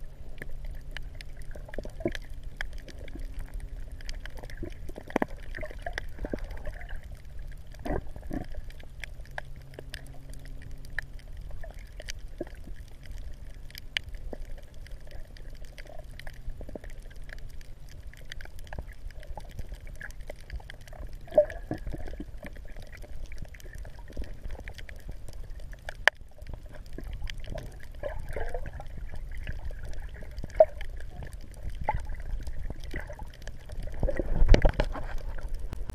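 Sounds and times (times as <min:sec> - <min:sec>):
small splashes and clicks: 0:00.0 - 0:35.9
seawater sloshing and trickling: 0:19.4 - 0:35.6.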